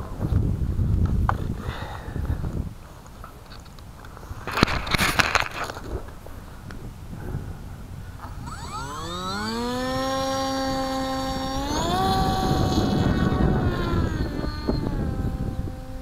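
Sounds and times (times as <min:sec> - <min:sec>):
electric motor and propeller whine: 0:07.8 - 0:16.0.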